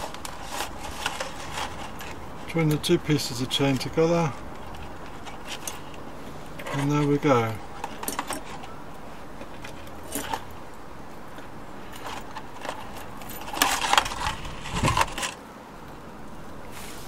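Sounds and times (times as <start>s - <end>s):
metal chain clinking: 7.8s - 8.7s, 10.0s - 10.5s.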